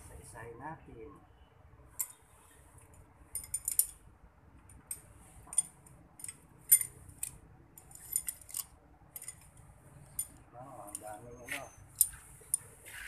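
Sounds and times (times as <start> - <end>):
metal rods clinking: 2.0 - 2.2, 3.3 - 4.0, 4.7 - 13.0.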